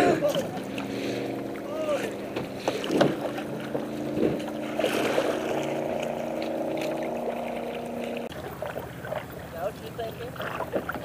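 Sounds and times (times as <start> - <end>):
low drone: 0.0 - 8.4
water splashing and lapping: 0.0 - 11.0.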